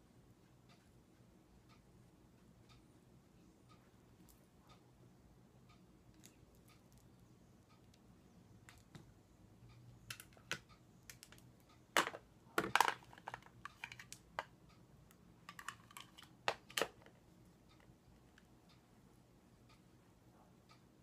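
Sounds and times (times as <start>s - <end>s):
plastic makeup cases clicking: 12.0s - 14.5s, 15.5s - 17.1s.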